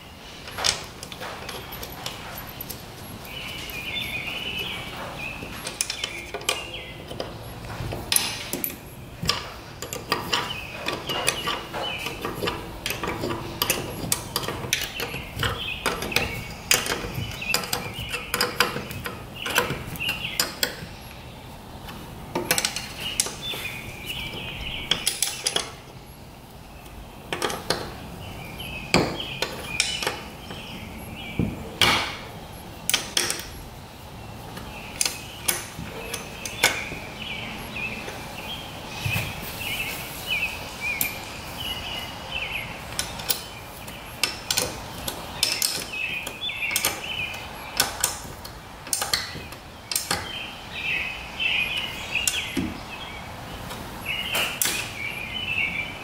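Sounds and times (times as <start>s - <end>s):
wrench clinking on bolts: 8.1s - 21.0s, 22.3s - 24.2s, 24.8s - 25.8s, 27.3s - 28.0s, 32.9s - 33.6s, 44.2s - 50.3s.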